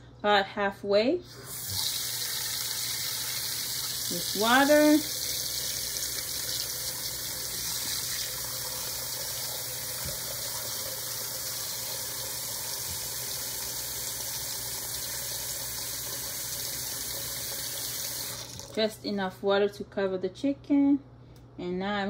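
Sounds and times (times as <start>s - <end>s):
faucet running into metal pot: 1.3s - 18.8s.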